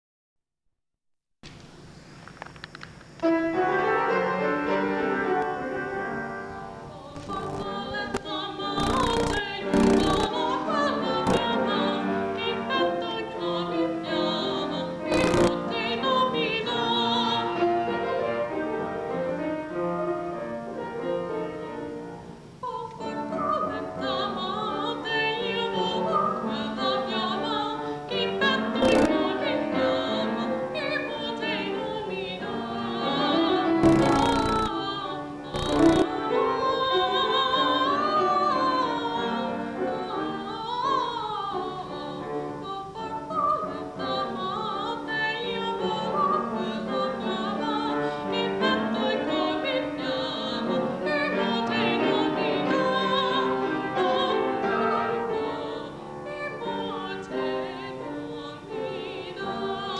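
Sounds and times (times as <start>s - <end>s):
woman singing classically: 6.8s - 18.4s, 22.6s - 59.9s
short bursts of noise: 7.0s - 12.0s, 15.0s - 16.3s, 28.5s - 30.2s, 33.1s - 36.4s.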